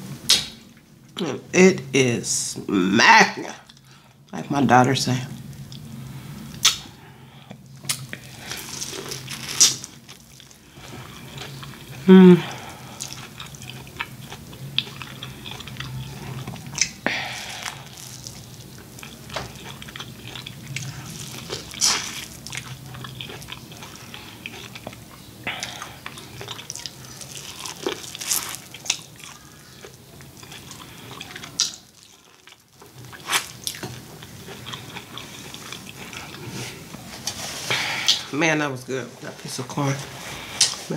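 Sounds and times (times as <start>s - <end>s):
wet chewing and lip-smacking: 6.5s - 36.5s
sharp mouth clicks: 6.6s - 6.8s.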